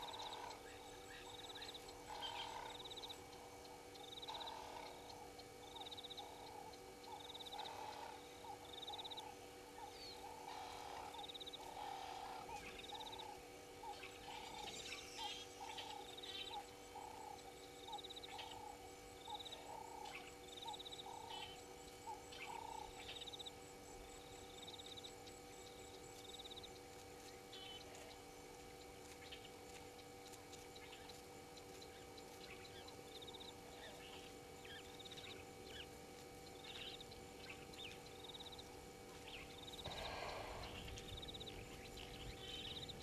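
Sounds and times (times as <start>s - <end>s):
low animal call: 0.0s - 3.1s, 4.3s - 5.3s, 9.8s - 23.2s, 39.3s - 42.8s.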